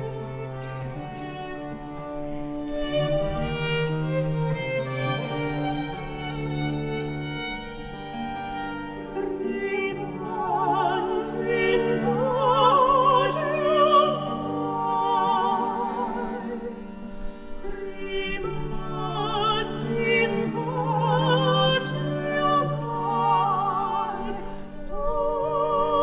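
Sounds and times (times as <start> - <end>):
bowed strings: 0.0 - 26.0
classical voice singing with vibrato: 8.9 - 26.0.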